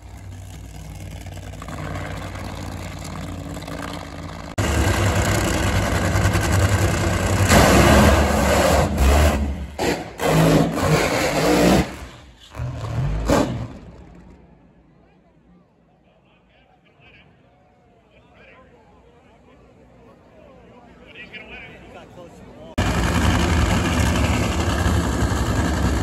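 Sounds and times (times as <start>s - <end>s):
drag racing engines at full power: 0.0s - 14.9s, 22.8s - 26.0s.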